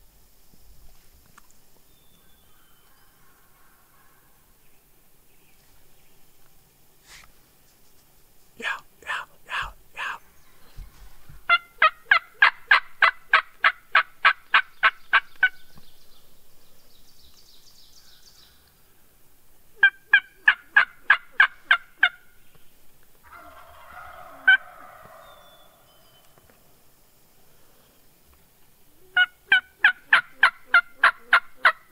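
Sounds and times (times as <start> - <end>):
turkey yelps: 11.5 - 15.5, 19.8 - 22.2, 23.2 - 26.3, 29.1 - 31.9.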